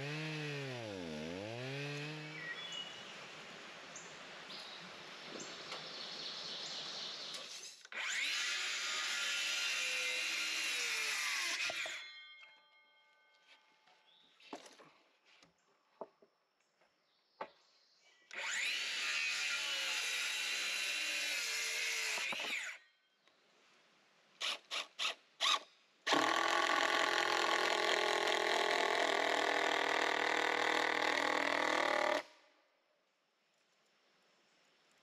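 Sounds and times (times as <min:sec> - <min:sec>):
cordless drill drilling into wood: 0:07.9 - 0:12.0, 0:18.3 - 0:22.8, 0:24.4 - 0:32.3.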